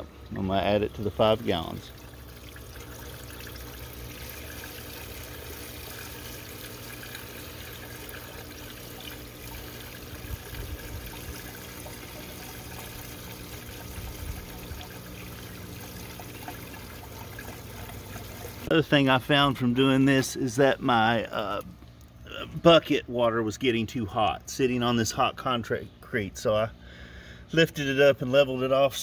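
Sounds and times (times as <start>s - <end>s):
water trickling: 0.0s - 18.7s
liquid pouring from jug: 0.1s - 18.7s.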